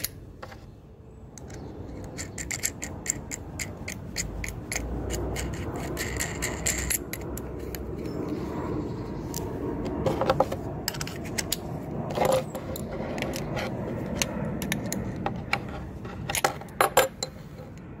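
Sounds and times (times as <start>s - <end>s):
small metal parts clicking: 1.3s - 8.1s.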